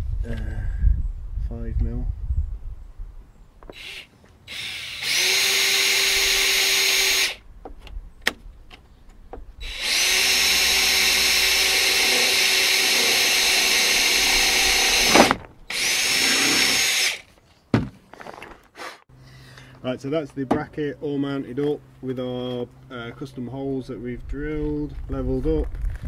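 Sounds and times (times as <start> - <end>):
cordless drill boring plastic: 3.7 - 7.4, 9.6 - 17.2.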